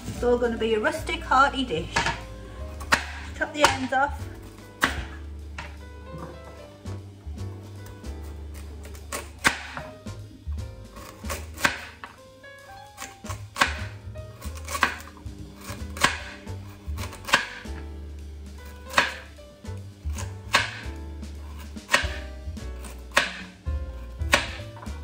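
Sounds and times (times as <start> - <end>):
background music: 0.0 - 25.0
knife chopping carrot on board: 2.0 - 4.0, 4.8 - 6.6, 8.0 - 12.2, 13.0 - 17.8, 18.7 - 19.3, 20.0 - 25.0.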